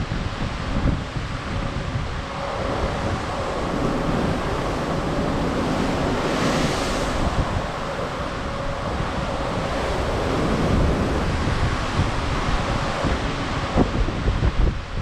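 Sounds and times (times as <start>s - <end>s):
sea rushing past ship: 0.0s - 15.0s
wave wash: 0.0s - 15.0s
wind gusting on microphone: 0.0s - 15.0s.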